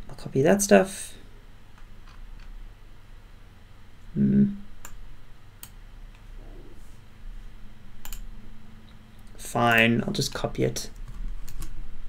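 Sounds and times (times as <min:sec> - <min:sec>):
man humming: 0:04.1 - 0:04.6
computer mouse clicks: 0:08.0 - 0:08.3.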